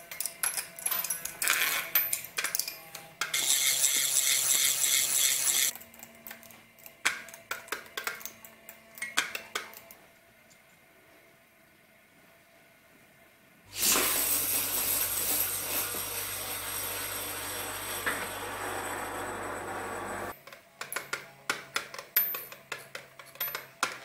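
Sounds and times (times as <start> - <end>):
metal spinning tops rattling: 0.2 - 5.8.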